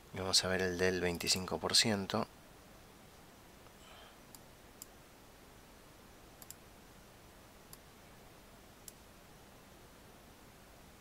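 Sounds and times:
faint steady hiss: 0.0s - 11.0s
computer mouse clicks: 6.4s - 6.6s.

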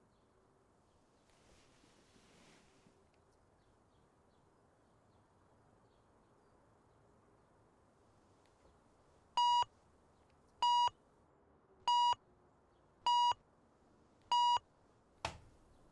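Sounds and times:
alarm clock beeps: 9.4s - 9.7s, 10.6s - 10.9s, 11.9s - 12.2s, 13.1s - 13.4s, 14.3s - 14.6s.

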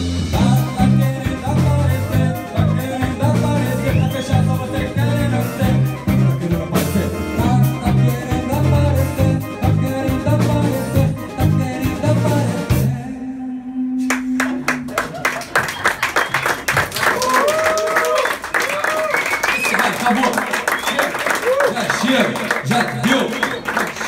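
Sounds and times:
live rock band playing: 0.0s - 13.2s
audience clapping: 14.1s - 24.0s.

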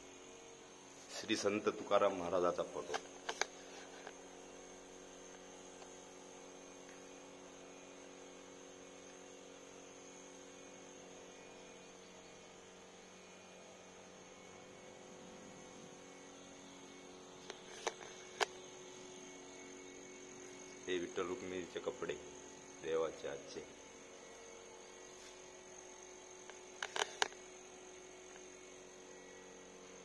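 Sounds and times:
faint electrical hum: 0.0s - 30.0s
thin high whine: 0.0s - 30.0s.

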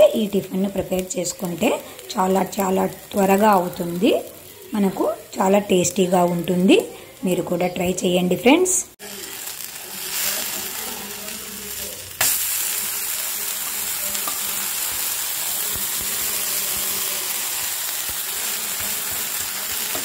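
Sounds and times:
flatbread sizzling in oil: 9.0s - 20.0s.

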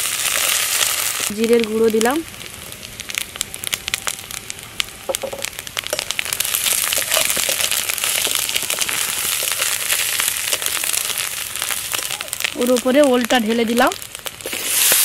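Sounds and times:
spices sizzling in hot oil: 0.0s - 15.0s
metal spatula stirring: 5.9s - 11.7s.

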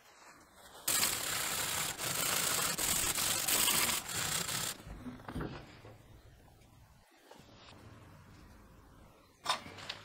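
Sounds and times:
wire brush scrubbing steel: 0.9s - 4.8s.

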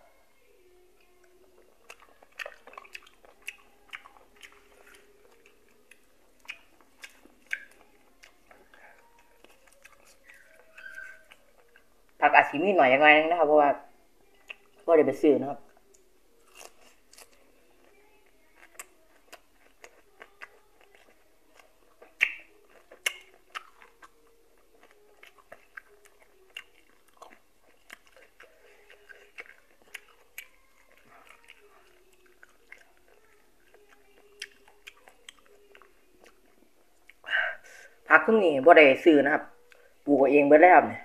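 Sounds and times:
person chewing with wet smacks: 1.0s - 11.9s, 15.9s - 37.2s.

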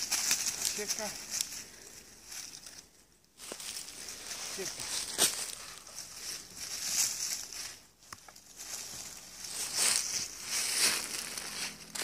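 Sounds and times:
dog moving through dry leaves: 0.0s - 1.4s, 8.4s - 12.0s
footsteps in leaves: 0.0s - 12.0s.

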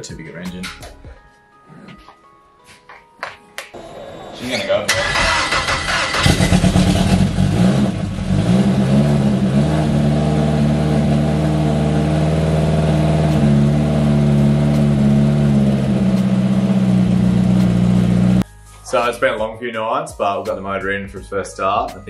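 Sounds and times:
turbocharged engine idling: 3.8s - 8.4s, 9.2s - 18.4s.

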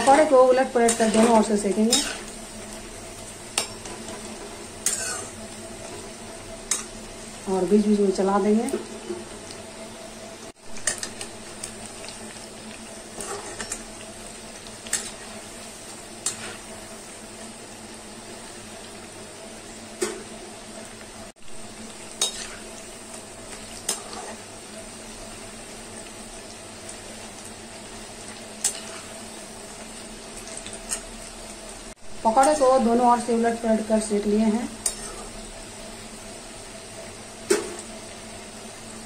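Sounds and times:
metal utensil scraping pan: 0.0s - 2.4s, 3.6s - 6.0s, 13.1s - 13.9s, 22.2s - 22.7s
deep-frying sizzle in hot oil: 0.0s - 39.0s.

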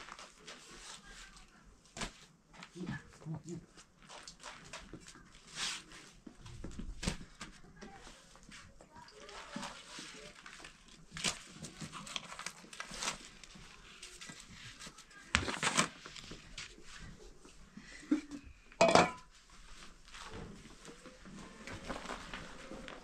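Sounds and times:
flatbread rustling and crinkling: 0.0s - 18.5s, 19.2s - 23.0s
knocks and clinks on metal tray: 18.8s - 19.3s.

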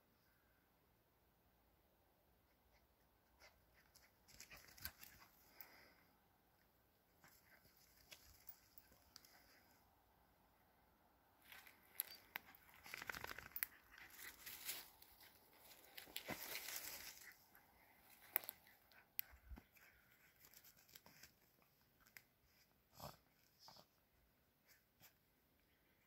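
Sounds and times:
dog paws digging in soil: 11.4s - 21.5s.

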